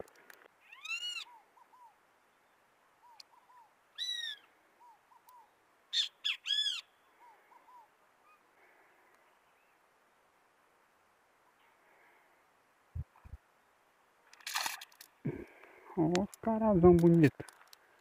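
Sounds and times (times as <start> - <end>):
birds calling loudly: 0.6 - 2.0, 3.0 - 8.5.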